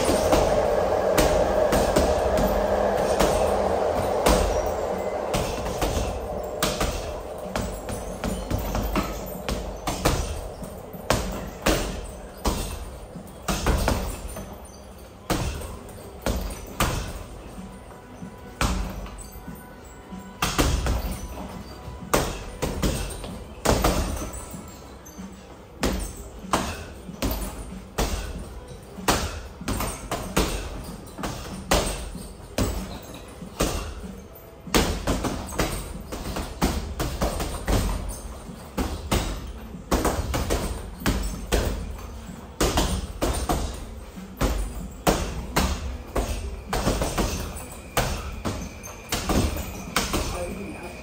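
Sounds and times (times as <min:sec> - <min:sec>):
gloves hitting punching bags: 0:20.4 - 0:21.3, 0:25.8 - 0:50.3.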